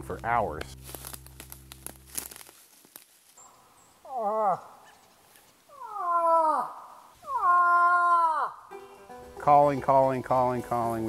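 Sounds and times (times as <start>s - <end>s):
person imitating moose call: 4.0s - 4.8s, 5.7s - 8.8s.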